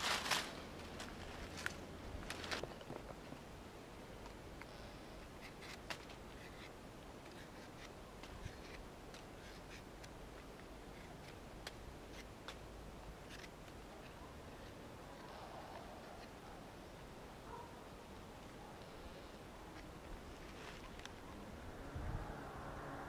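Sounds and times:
knife scraping wood: 0:05.3 - 0:11.4, 0:12.0 - 0:12.6.

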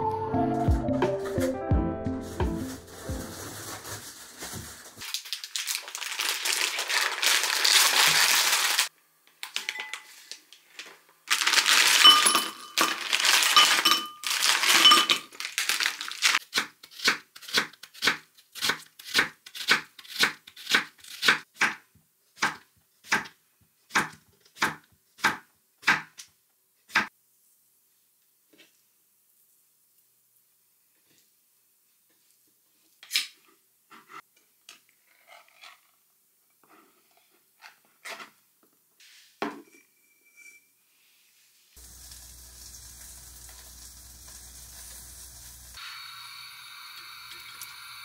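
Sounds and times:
plastic bag crinkling: 0:02.2 - 0:16.4
shrimp poured into glass bowl: 0:11.3 - 0:16.3
glass clinks: 0:12.0 - 0:15.2, 0:39.6 - 0:40.7.

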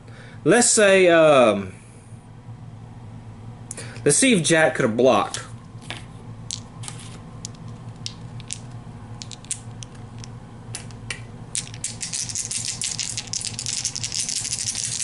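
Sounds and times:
dice clattering across board: 0:05.9 - 0:15.0
dice clicking in hand: 0:07.4 - 0:15.0.

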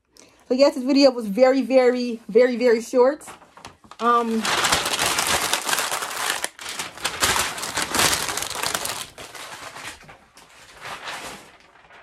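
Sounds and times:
paper crumpling: 0:03.2 - 0:12.0.

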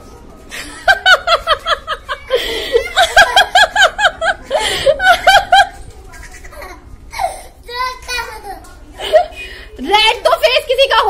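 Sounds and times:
young child laughing: 0:00.6 - 0:07.5.

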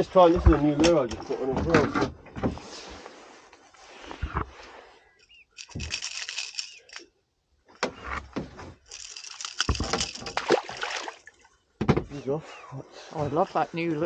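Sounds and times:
rattling and rustling handling noise: 0:03.6 - 0:07.1, 0:07.8 - 0:12.2.

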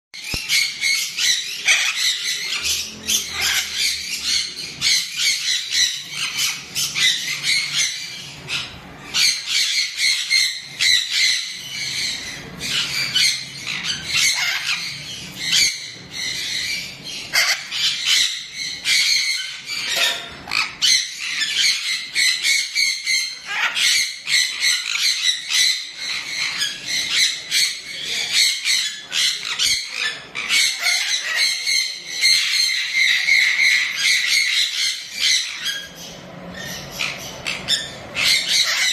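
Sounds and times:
macaw squawking: 0:00.2 - 0:38.9.

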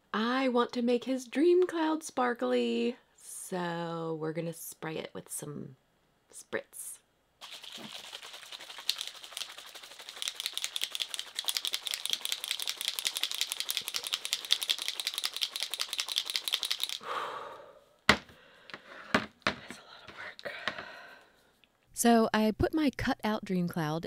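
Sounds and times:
spray bottles rattling: 0:07.4 - 0:17.0
bottle knocking on table: 0:18.1 - 0:18.3.

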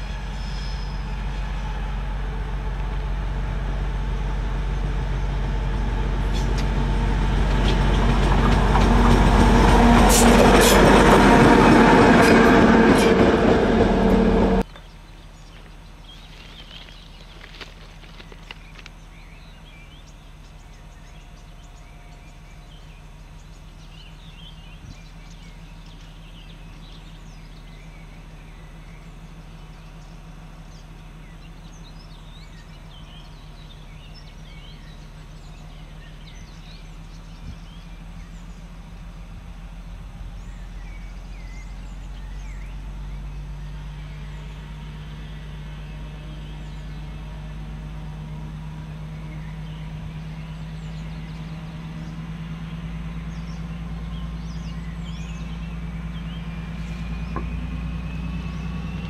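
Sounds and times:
diesel locomotive idling: 0:00.0 - 0:59.0
birds chirping: 0:13.4 - 0:39.2, 0:40.3 - 0:59.0.

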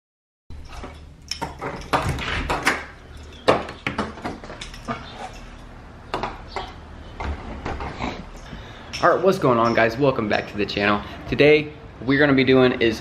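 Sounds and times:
door opening and shutting: 0:00.6 - 0:05.4, 0:06.1 - 0:08.4.

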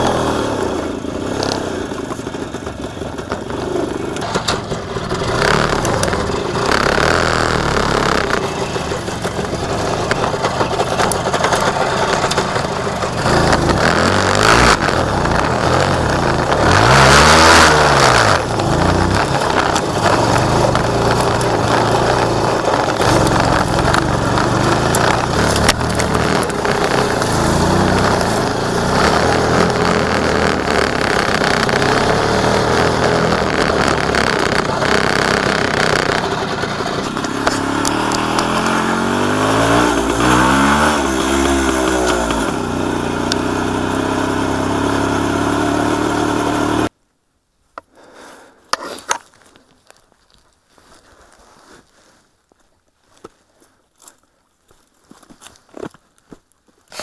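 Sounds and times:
motorcycle two-stroke engine: 0:00.0 - 0:46.9
faint rustles: 0:47.9 - 0:57.0.

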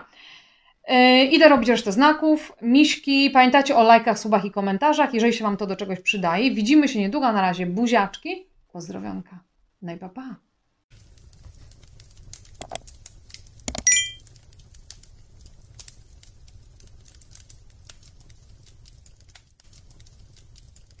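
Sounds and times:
fire crackling: 0:10.9 - 0:21.0
sharp cracks: 0:11.0 - 0:21.0
bright metallic ping: 0:13.8 - 0:14.2.

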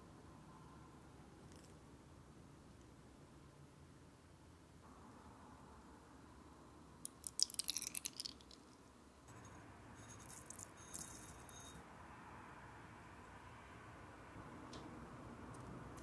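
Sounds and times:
sugar poured into a bowl: 0:07.1 - 0:08.7, 0:10.0 - 0:11.8.

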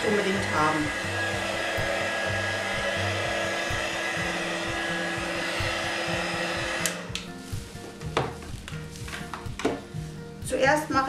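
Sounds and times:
heat gun blowing: 0:00.0 - 0:07.6.

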